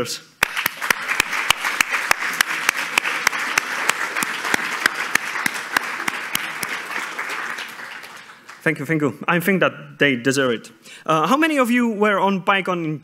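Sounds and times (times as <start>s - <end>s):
close hand claps: 0.4s - 8.8s
audience applauding: 0.4s - 8.9s.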